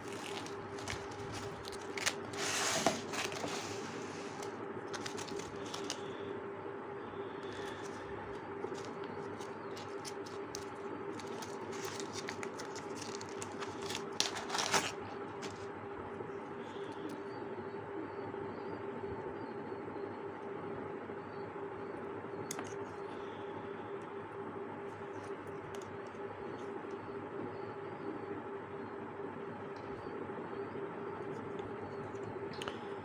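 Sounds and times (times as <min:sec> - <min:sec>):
plastic bags crinkling: 0:00.0 - 0:06.1, 0:08.6 - 0:15.6
steady hum: 0:00.0 - 0:33.0.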